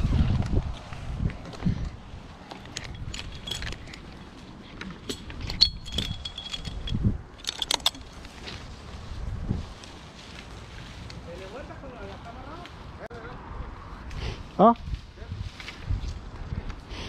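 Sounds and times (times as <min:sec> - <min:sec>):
metal climbing hardware clinking: 0:02.4 - 0:08.6
short metallic ring: 0:05.1 - 0:07.9.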